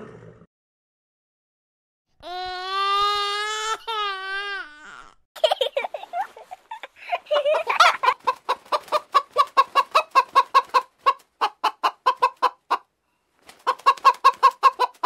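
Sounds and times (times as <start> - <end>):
hen clucking: 7.4 - 12.9, 13.6 - 15.0.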